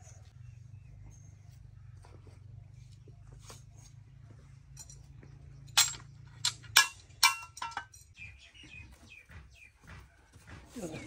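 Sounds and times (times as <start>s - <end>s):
metal auger clinking: 4.6s - 8.3s.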